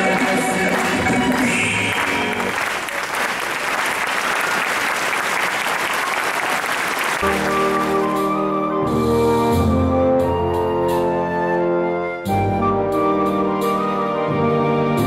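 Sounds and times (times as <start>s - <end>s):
dance music: 0.0s - 2.5s
audience applauding: 0.0s - 8.2s
instrumental music: 7.2s - 15.0s.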